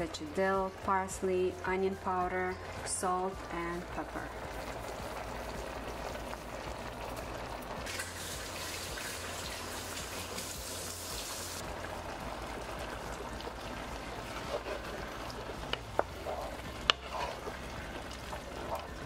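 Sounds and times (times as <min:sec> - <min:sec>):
tomato sauce sizzling in a pot: 0:00.4 - 0:19.0.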